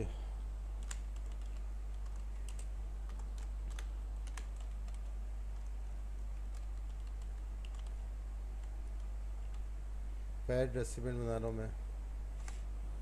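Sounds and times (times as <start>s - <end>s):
low electrical hum: 0.0s - 13.0s
typing on computer keyboard: 0.8s - 8.0s.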